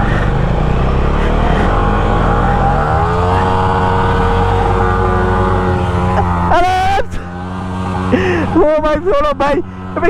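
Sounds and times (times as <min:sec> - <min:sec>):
motorcycle engine revving: 0:00.0 - 0:10.0
second motorcycle engine running: 0:00.0 - 0:10.0.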